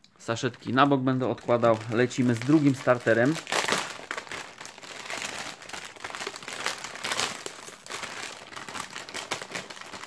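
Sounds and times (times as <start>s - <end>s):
foil bag crinkling: 0.6s - 10.0s.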